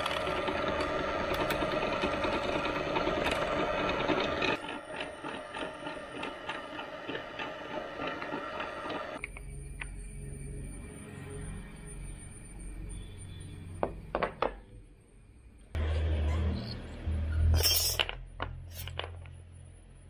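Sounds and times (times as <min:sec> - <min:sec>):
drill press boring wood: 0:00.0 - 0:09.2
motor hum: 0:00.0 - 0:09.2.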